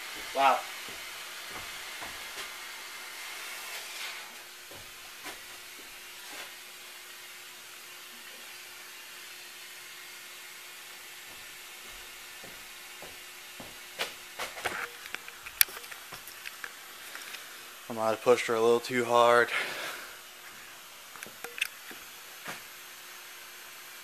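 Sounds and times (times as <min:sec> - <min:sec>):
steam hissing: 0:00.0 - 0:15.3, 0:19.2 - 0:21.0.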